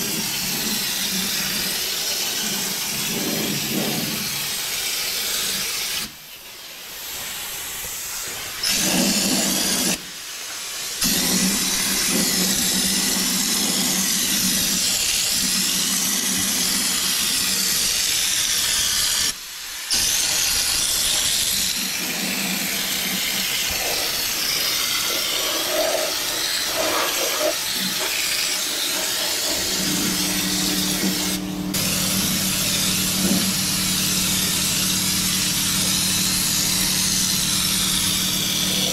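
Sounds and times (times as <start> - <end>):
air spray gun hissing: 0.0 - 38.9
low machine hum: 29.5 - 38.9.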